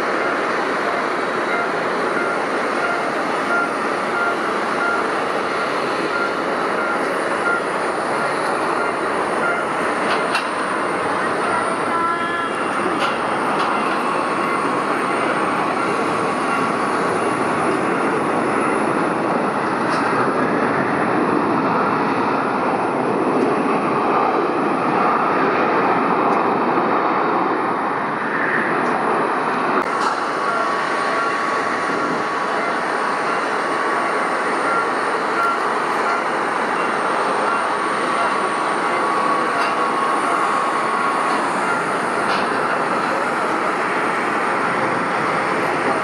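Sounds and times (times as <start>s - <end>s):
jet engine noise: 0.0s - 46.0s
faint high whine: 30.3s - 46.0s.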